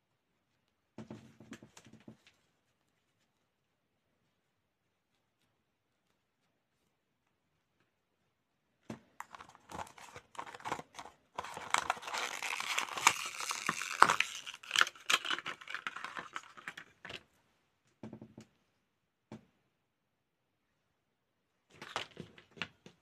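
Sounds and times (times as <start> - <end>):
plastic packaging crinkling: 9.2 - 17.0.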